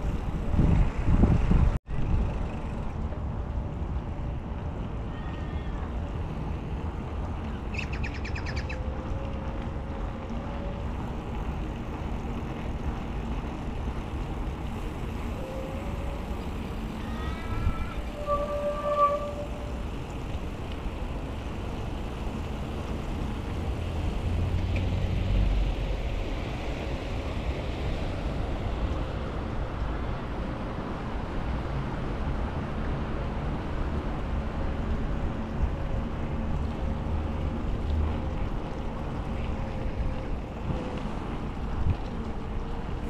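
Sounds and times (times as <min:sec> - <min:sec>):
wind rumbling on microphone: 0:00.0 - 0:43.0
tyres rolling over wet pavement: 0:08.6 - 0:43.0.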